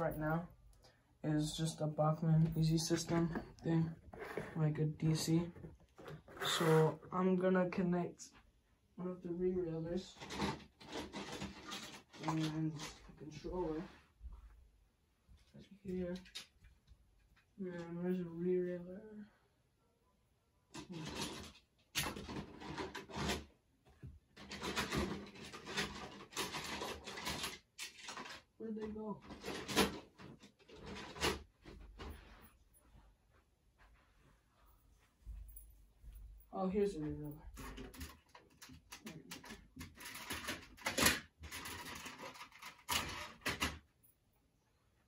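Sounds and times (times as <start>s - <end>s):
hand rummaging rustling and scraping: 1.5s - 6.9s
plastic track pieces rustling and clicking: 10.2s - 13.1s, 24.4s - 28.6s, 37.6s - 43.8s.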